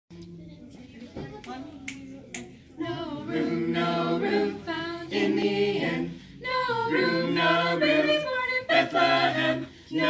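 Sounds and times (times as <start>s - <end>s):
finger snap: 1.4s - 2.5s
choir singing a cappella: 2.8s - 10.0s.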